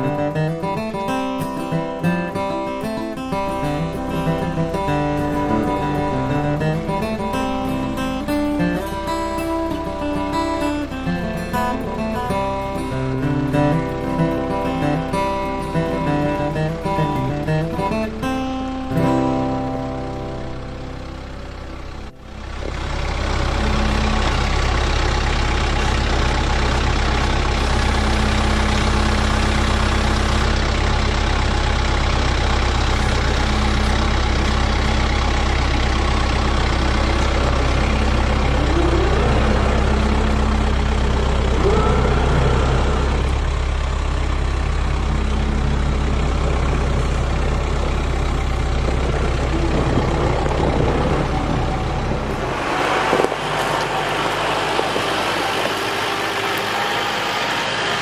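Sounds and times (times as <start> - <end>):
tractor diesel engine running: 0.0 - 58.0
brief rising tones: 37.2 - 43.6.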